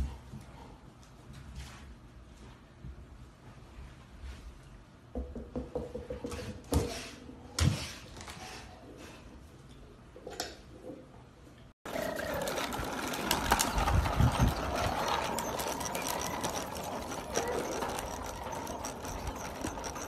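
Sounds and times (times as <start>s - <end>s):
toy plastic wheels rattling on concrete: 11.9s - 20.0s.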